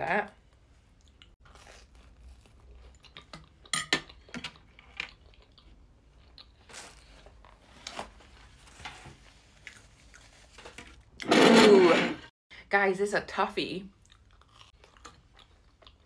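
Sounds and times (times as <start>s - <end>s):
person chewing toast: 0.5s - 7.6s, 13.9s - 16.0s.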